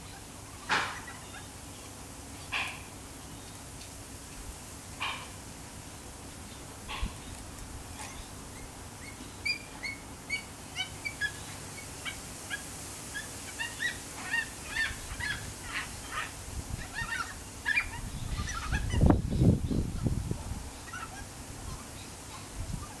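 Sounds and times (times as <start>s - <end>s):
cockatoos high calls: 0.0s - 1.6s, 7.9s - 23.0s.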